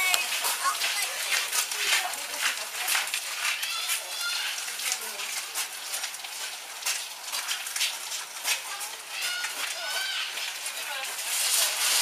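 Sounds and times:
high child-like voice: 0.0s - 1.4s, 3.4s - 4.7s, 8.6s - 10.5s.

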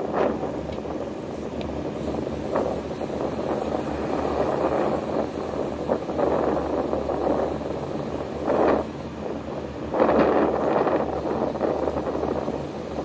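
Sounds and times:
traffic road noise: 0.0s - 13.0s
wind noise: 0.0s - 13.0s
vehicle whoosh: 2.0s - 9.0s.

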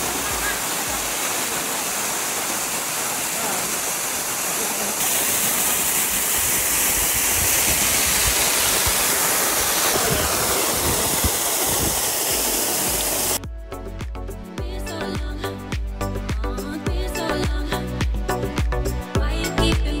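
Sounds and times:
waterfall rushing: 0.0s - 13.4s
music with a beat: 13.4s - 20.0s.

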